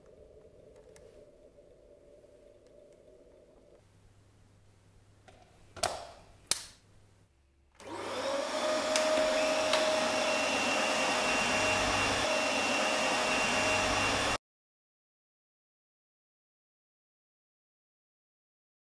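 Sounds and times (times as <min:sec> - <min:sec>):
vacuum cleaner motor whining: 0:07.8 - 0:14.4
plug clicking into wall socket: 0:08.9 - 0:09.9.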